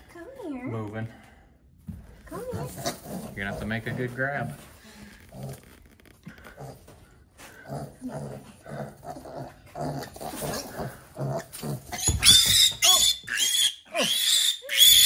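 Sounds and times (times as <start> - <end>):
pig grunting: 2.4 - 4.6, 6.2 - 13.1.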